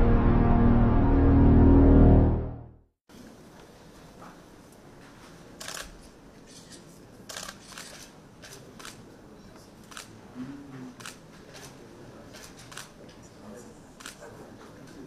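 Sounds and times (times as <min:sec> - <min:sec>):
camera shutters clicking: 0:05.6 - 0:06.0, 0:06.6 - 0:09.0, 0:09.9 - 0:10.1.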